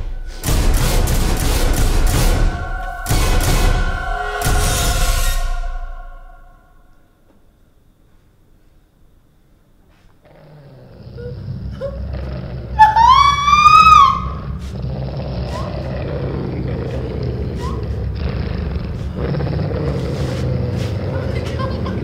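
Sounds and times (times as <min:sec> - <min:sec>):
low rumbling drone: 0:00.0 - 0:07.3, 0:10.7 - 0:22.0
high-pitched cry: 0:12.8 - 0:14.5.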